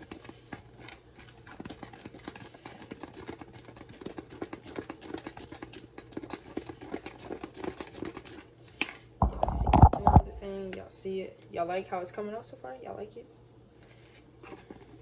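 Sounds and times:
utensil tapping mixing bowl: 0:09.2 - 0:10.5.

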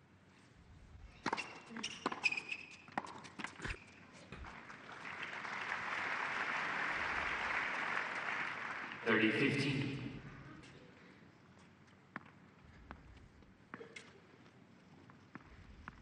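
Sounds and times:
tennis ball bounces: 0:01.2 - 0:03.6
crowd applause: 0:04.4 - 0:10.0.

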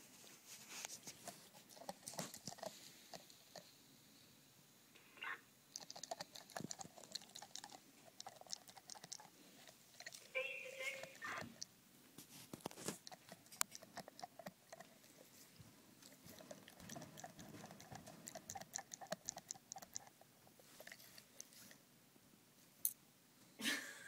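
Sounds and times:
dog teeth clicking on nails: 0:01.2 - 0:03.7, 0:05.7 - 0:10.3, 0:12.7 - 0:15.3, 0:16.0 - 0:21.8.

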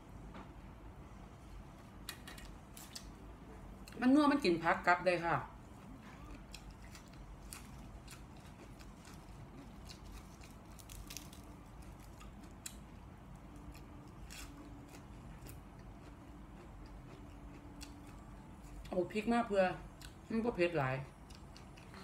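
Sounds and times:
person biting and chewing: 0:06.3 - 0:12.8
lettuce leaves crackling: 0:09.0 - 0:12.2.

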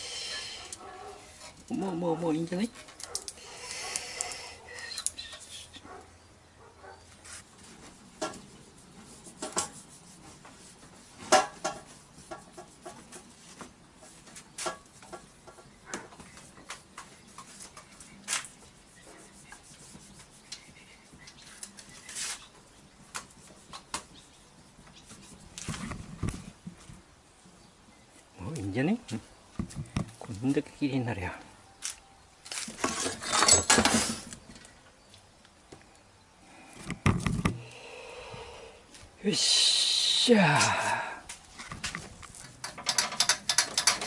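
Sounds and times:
metal scraping on wood: 0:07.2 - 0:13.4, 0:32.5 - 0:34.5, 0:41.6 - 0:44.0
metal knocks and clinks: 0:42.6 - 0:44.0.

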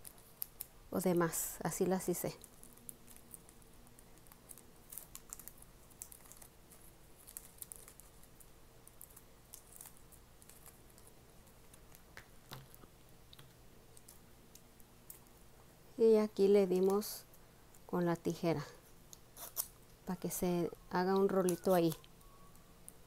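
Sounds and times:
cellophane bag crinkling: 0:02.0 - 0:14.2.

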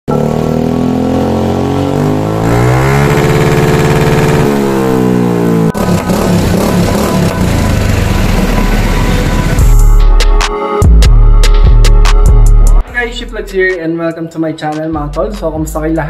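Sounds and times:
scooter engine revving: 0:00.1 - 0:10.0.

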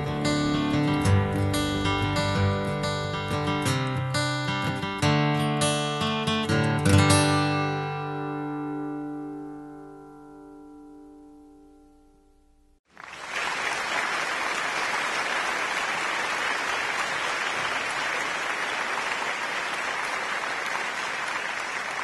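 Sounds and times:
crowd applauding: 0:12.9 - 0:22.0.

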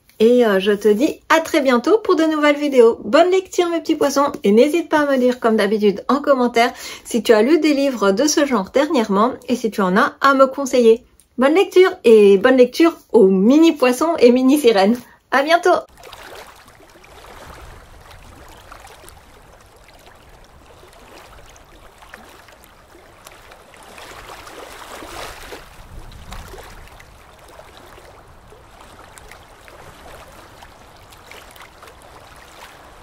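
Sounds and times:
moving water with crackles: 0:15.9 - 0:33.0.

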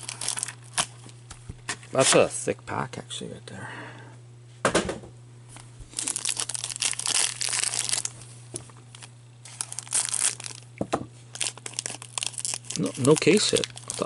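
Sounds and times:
foil wrapper crinkling: 0:00.0 - 0:01.2, 0:05.9 - 0:14.0.

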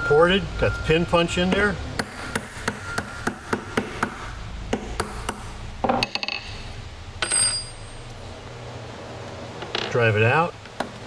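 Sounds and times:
metallic ring of steel part: 0:07.2 - 0:08.1.

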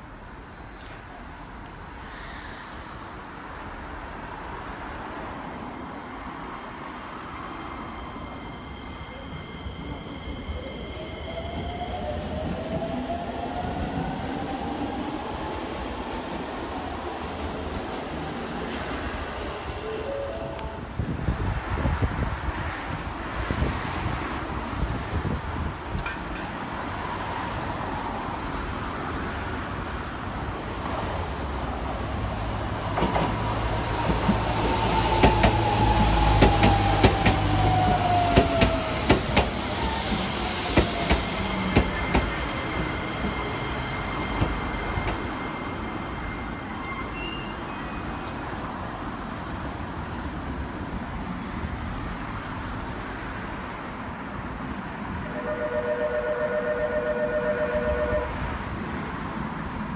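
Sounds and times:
train brakes: 0:34.1 - 0:48.3
steady high tones: 0:38.8 - 0:48.5.

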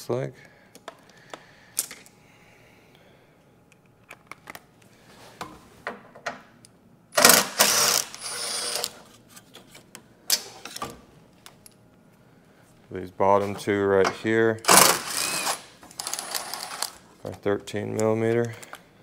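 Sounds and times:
cordless power tool running: 0:07.2 - 0:09.0, 0:14.7 - 0:17.0.

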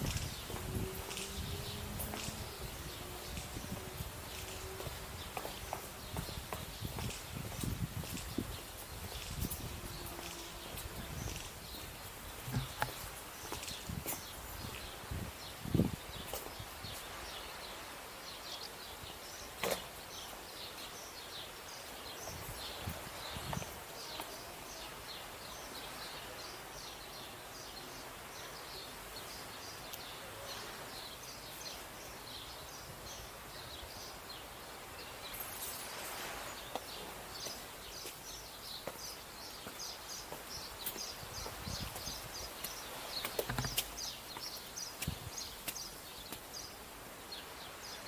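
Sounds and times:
soft footsteps: 0:00.0 - 0:15.0, 0:35.4 - 0:46.6
small birds chirping: 0:00.0 - 0:48.0
steady outdoor hiss: 0:00.0 - 0:48.0.

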